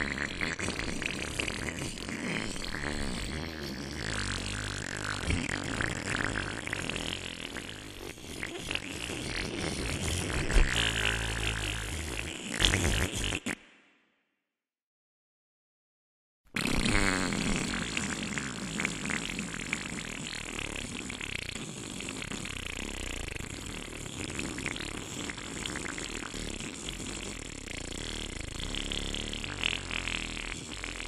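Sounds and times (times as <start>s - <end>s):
air rushing out of balloon: 5.3s - 13.6s.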